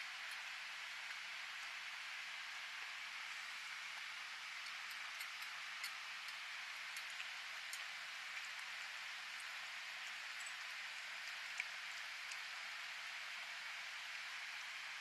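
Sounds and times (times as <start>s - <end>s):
steady hiss: 0.0s - 15.0s
cats chewing and licking: 4.0s - 13.0s.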